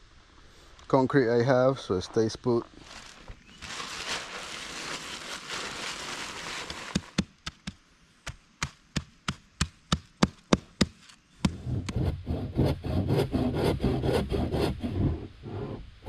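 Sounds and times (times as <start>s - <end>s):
dry concrete mix pouring: 2.8s - 7.2s.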